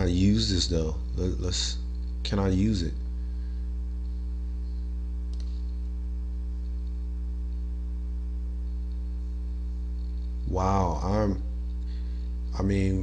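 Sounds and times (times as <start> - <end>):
electrical mains hum: 0.0 - 13.0
faint click: 4.0 - 5.9.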